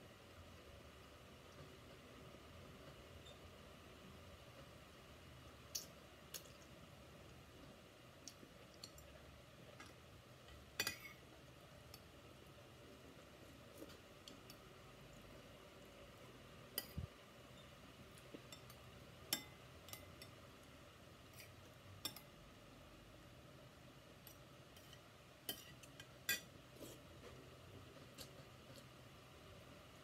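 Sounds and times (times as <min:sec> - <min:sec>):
cutlery clinking on plates: 0:10.8 - 0:11.2, 0:24.8 - 0:26.5.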